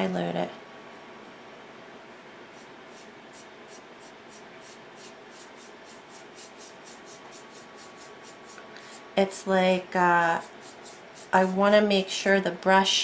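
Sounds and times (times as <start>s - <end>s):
paintbrush bristle strokes: 2.5s - 9.1s, 9.8s - 11.8s.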